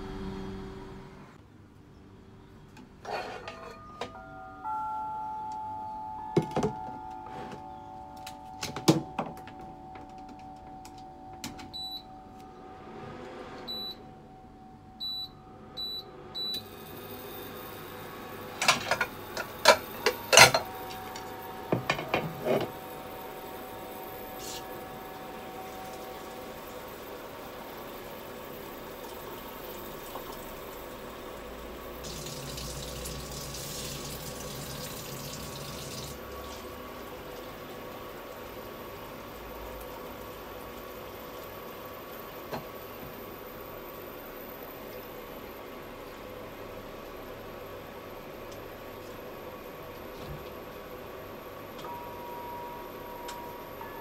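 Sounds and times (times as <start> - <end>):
dishes clattering: 3.0 - 4.2, 21.7 - 22.7
cooker running hum: 3.0 - 54.0
dish clinking: 3.1 - 11.8
touch panel beep: 3.8 - 12.6, 13.7 - 14.1, 15.0 - 16.7
tap water running into sink: 32.0 - 36.6.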